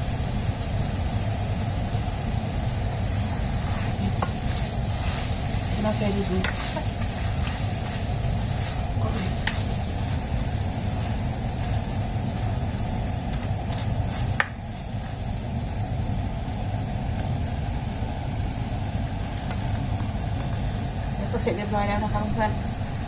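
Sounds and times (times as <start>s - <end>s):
meat sizzling in a frying pan: 0.0s - 18.0s, 19.1s - 23.0s
spoon scraping a pan: 3.6s - 10.1s.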